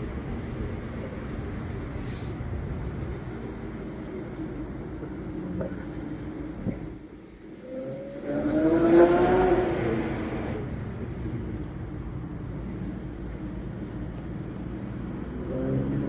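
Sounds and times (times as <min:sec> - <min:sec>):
car engine revving: 0:07.5 - 0:11.7.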